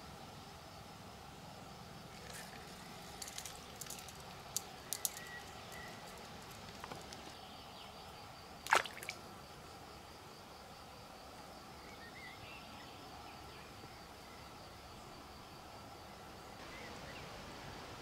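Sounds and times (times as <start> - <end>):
faint insect hum: 0.0 - 18.0
fish splashing water: 8.6 - 9.2.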